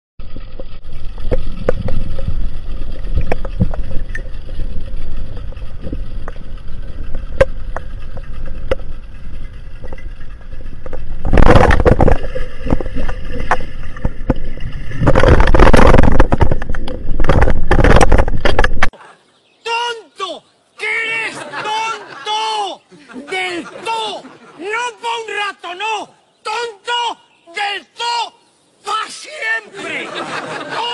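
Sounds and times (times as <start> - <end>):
underwater low rumble: 0.2 - 18.9.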